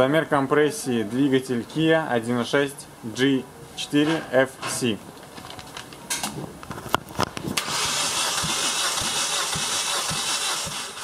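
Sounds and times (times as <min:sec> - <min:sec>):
starter motor cranking engine: 0:07.6 - 0:11.0.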